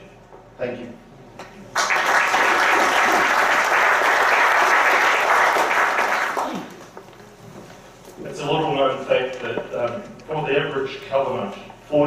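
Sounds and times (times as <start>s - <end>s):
audience applauding: 1.7s - 7.0s.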